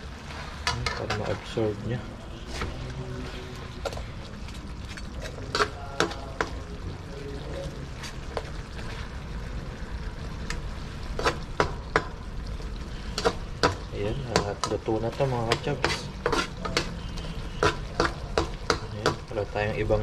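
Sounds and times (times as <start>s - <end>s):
sauce bubbling in a pan: 0.0s - 20.0s
utensil clinking against pan: 13.2s - 17.0s.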